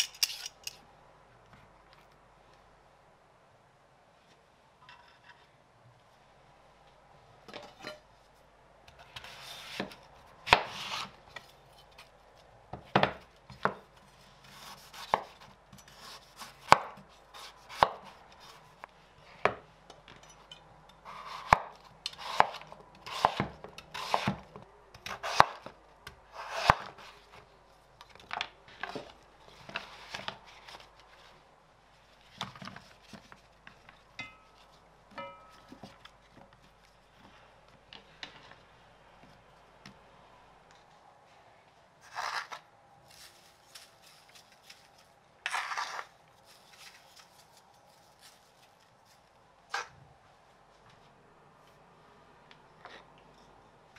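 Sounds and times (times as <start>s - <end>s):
knife rasping through root: 14.4s - 18.7s, 21.1s - 24.4s, 26.3s - 27.2s, 42.0s - 42.6s.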